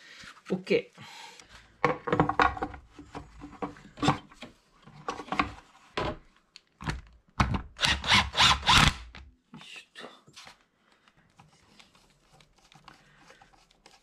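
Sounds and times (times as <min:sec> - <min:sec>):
cordless driver running screw: 0:07.8 - 0:09.1.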